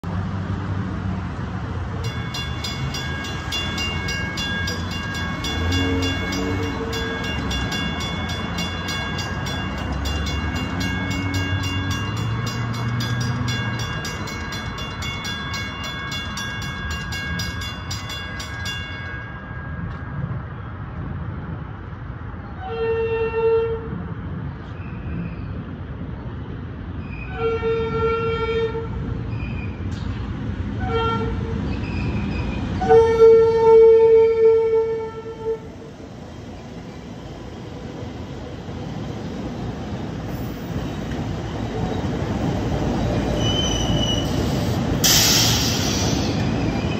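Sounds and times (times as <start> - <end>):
road traffic rumble: 0.0 - 46.9
crossing warning bell ringing: 1.8 - 20.9
train horn blasts: 5.6 - 7.2, 22.6 - 24.0, 27.3 - 29.0, 30.8 - 31.6, 32.8 - 35.8.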